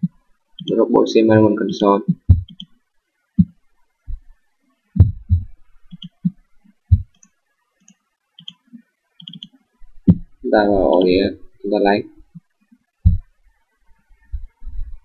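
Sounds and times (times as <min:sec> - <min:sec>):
computer mouse clicking: 0:00.6 - 0:00.8, 0:01.7 - 0:02.8, 0:05.0 - 0:08.6, 0:09.2 - 0:10.2.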